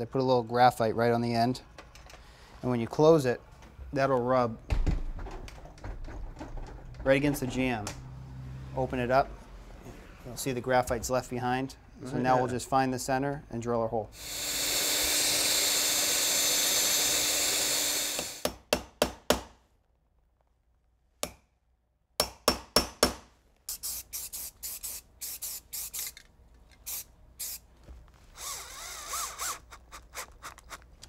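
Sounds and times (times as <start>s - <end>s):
cordless drill boring wood: 14.2s - 18.5s, 28.4s - 30.7s
drill driving a screw: 14.2s - 18.6s, 28.4s - 30.8s.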